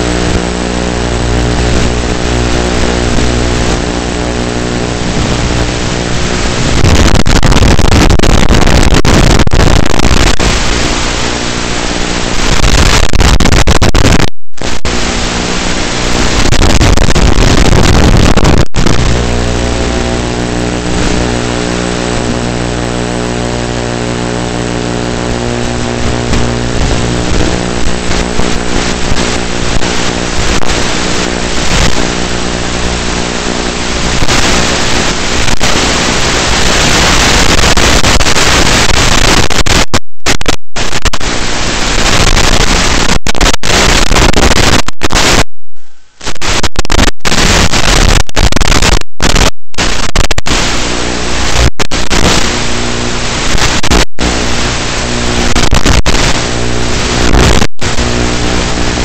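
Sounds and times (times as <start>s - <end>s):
electric motor and propeller buzzing: 0.0s - 6.8s
radio static hiss: 0.0s - 59.0s.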